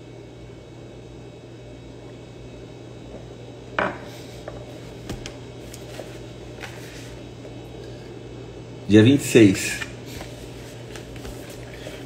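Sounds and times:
steady low hum: 0:00.0 - 0:12.0
ceramic mug knocking on desk: 0:03.8 - 0:04.0
book pages rustling: 0:05.6 - 0:07.2, 0:10.1 - 0:12.0.

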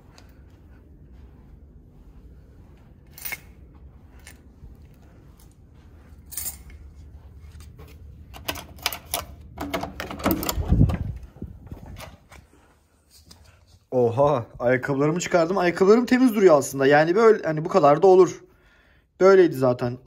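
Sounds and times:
key-card lock clicking: 0:08.3 - 0:10.8
metal lever handle clacking: 0:08.4 - 0:11.1.

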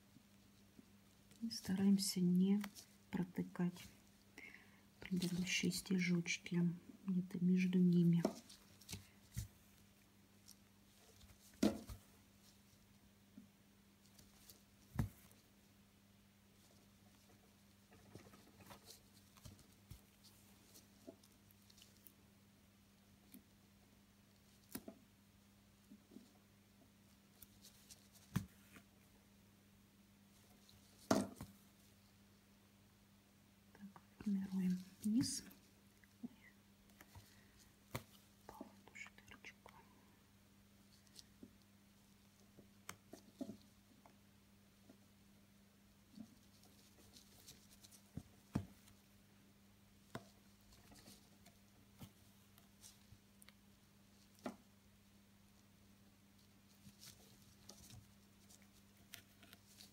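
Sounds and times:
faint low hum: 0:00.0 - 0:59.9
ribbon rustling through fabric: 0:00.1 - 0:04.3, 0:05.0 - 0:05.9, 0:07.6 - 0:13.0, 0:16.5 - 0:22.2, 0:27.0 - 0:29.0, 0:34.3 - 0:36.1, 0:46.0 - 0:49.2, 0:56.3 - 0:59.9
needle through fabric taps and rustles: 0:02.6 - 0:04.0, 0:08.0 - 0:09.8, 0:10.4 - 0:12.2, 0:14.1 - 0:15.5, 0:24.5 - 0:25.1, 0:27.4 - 0:28.9, 0:30.7 - 0:31.7, 0:36.9 - 0:38.7, 0:46.1 - 0:49.0, 0:50.0 - 0:53.6, 0:54.2 - 0:54.7.

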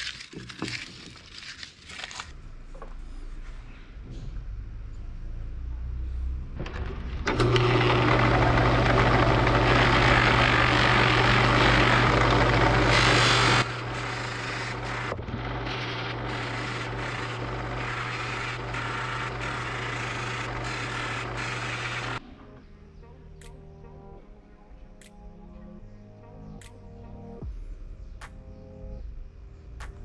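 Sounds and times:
drill press motor hum: 0:06.6 - 0:22.2
buffing wheel polishing wood: 0:09.3 - 0:22.2.

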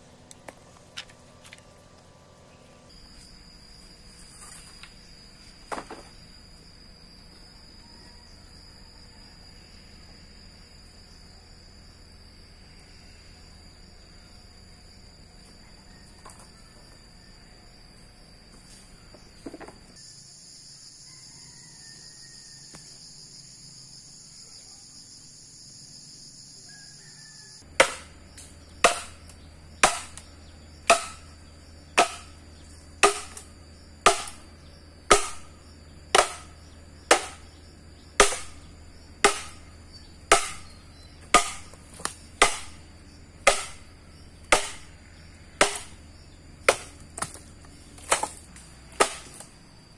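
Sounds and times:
insects trilling: 0:00.0 - 0:49.9
ringing chopping blows: 0:30.8 - 0:31.3, 0:33.0 - 0:33.4, 0:35.1 - 0:35.5, 0:36.1 - 0:37.5, 0:38.2 - 0:39.7, 0:40.3 - 0:41.8.

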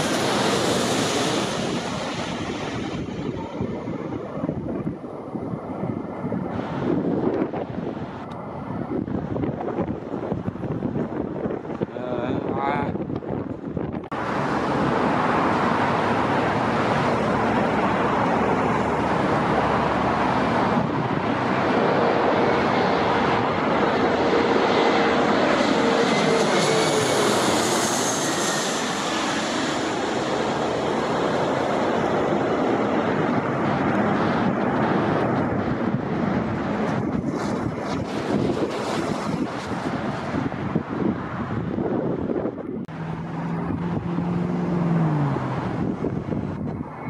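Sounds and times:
jet airliner passing overhead: 0:00.0 - 0:47.0.

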